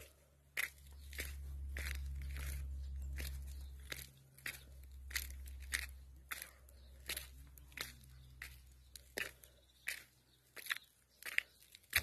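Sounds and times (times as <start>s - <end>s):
footsteps crunching on gravel: 0.0s - 12.0s
low rumble: 0.1s - 8.9s.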